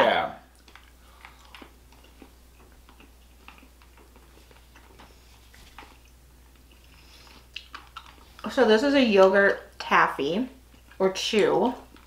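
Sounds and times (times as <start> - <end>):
low steady hum: 0.0 - 12.0
people chewing candy: 0.4 - 9.8, 10.6 - 12.0.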